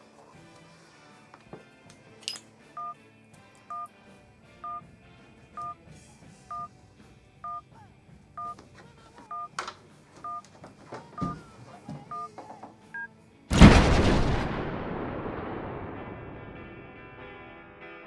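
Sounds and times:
two-tone electronic beep: 11.2 - 11.4.

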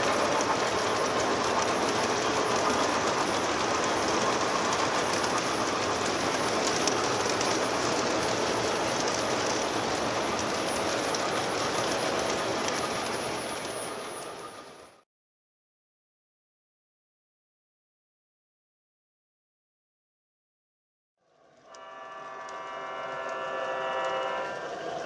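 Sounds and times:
model trains rattling on rails: 0.0 - 15.0, 21.4 - 25.0.

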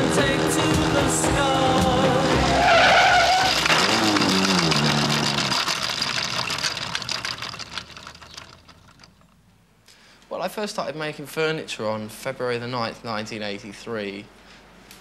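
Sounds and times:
motorcycle engine falling in pitch: 0.0 - 9.4
tyre screech: 2.4 - 5.9.

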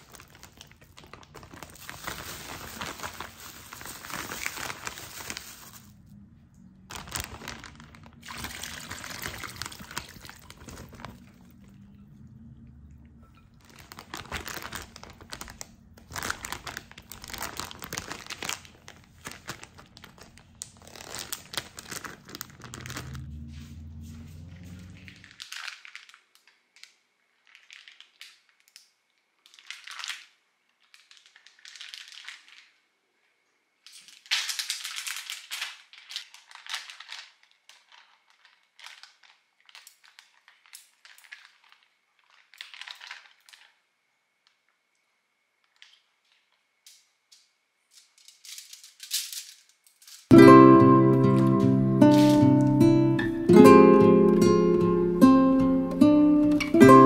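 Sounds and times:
crinkling and rustling: 0.0 - 12.0, 13.2 - 28.8, 29.4 - 32.8, 33.8 - 44.9, 45.6 - 50.4, 51.2 - 54.3
low steady hum: 0.0 - 25.3.

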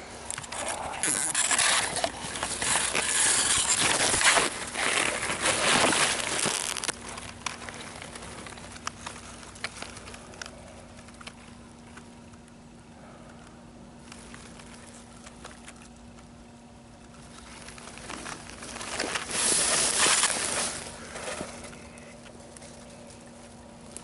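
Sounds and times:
low steady hum: 0.0 - 24.0
microphone rustling through grass: 17.5 - 21.8.

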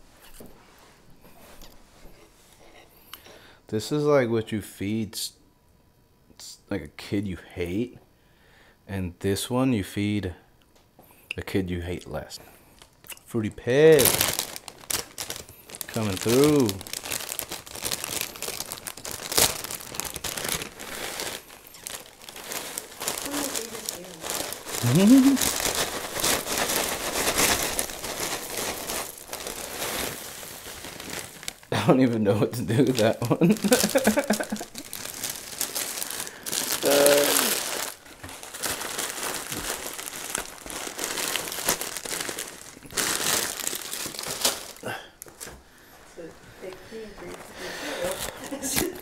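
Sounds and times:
plastic bag of cereal crinkling: 12.7 - 45.5, 47.2 - 49.0.

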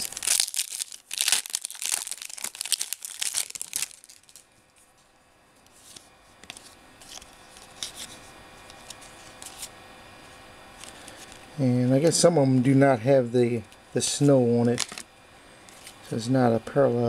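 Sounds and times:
wrapper tearing and crinkling: 0.0 - 4.4
cards being handled: 5.6 - 9.8, 14.1 - 15.0.

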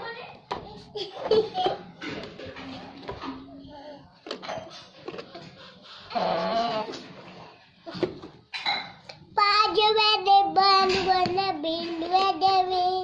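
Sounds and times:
child singing held notes: 9.4 - 13.0.

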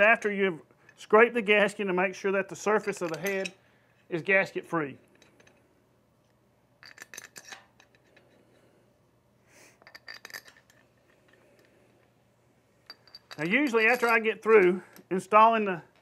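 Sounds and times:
bolts clinking against metal: 2.7 - 3.6, 9.8 - 10.8, 12.8 - 16.0.

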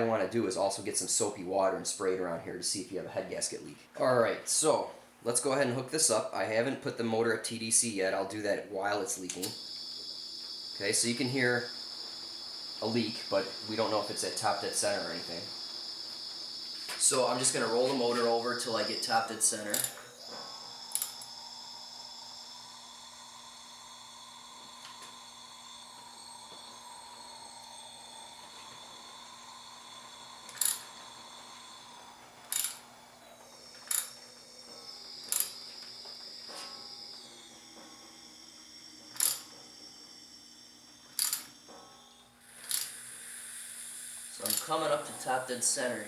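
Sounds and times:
compressed air hissing and whistling: 7.4 - 46.0
sharp clicks: 19.7 - 21.3, 30.5 - 30.9, 32.4 - 32.8, 35.2 - 35.8, 39.1 - 39.5, 41.1 - 41.5, 42.6 - 43.0.

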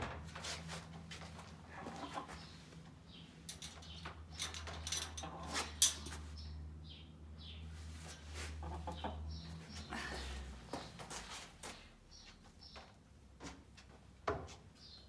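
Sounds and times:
chickens chirping: 1.6 - 4.4, 5.2 - 13.0.

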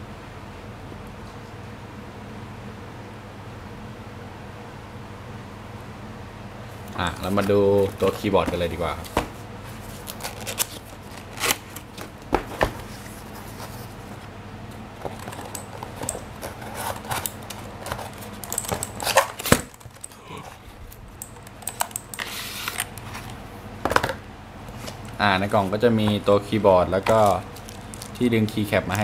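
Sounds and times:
cardboard rustling and sliding: 7.2 - 14.3, 15.0 - 18.4, 22.2 - 23.3
packaging clicks and knocks: 27.0 - 28.2.

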